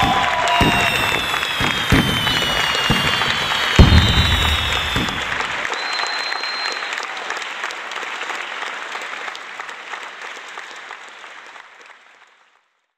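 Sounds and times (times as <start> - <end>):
crowd applause: 0.0 - 12.6.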